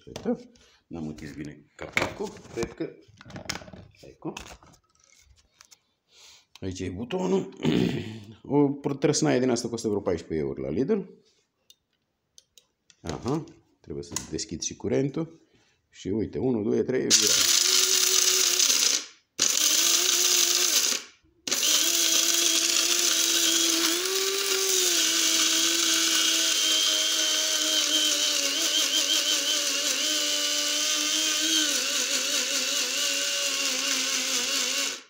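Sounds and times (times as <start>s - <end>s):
electric coffee grinder whirring: 17.1s - 35.0s.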